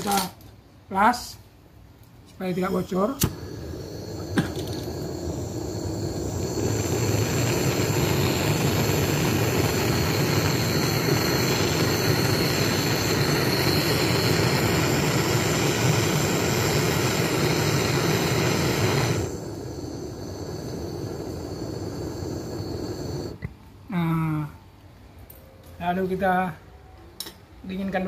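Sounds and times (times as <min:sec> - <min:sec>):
brazing torch hissing: 0:02.4 - 0:23.5.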